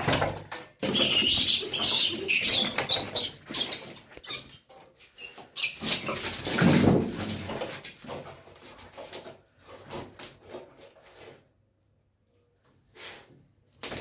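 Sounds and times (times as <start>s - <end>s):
rat squealing: 0.8s - 6.4s.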